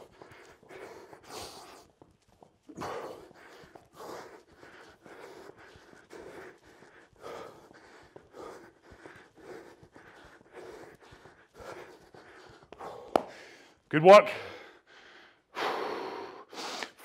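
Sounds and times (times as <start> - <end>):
man breathing hard: 0.0 - 17.0.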